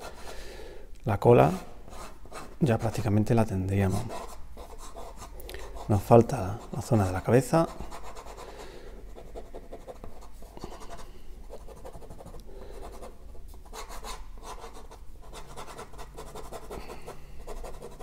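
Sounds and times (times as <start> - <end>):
ballpoint pen scratching on paper: 3.8 - 8.5, 9.1 - 18.0.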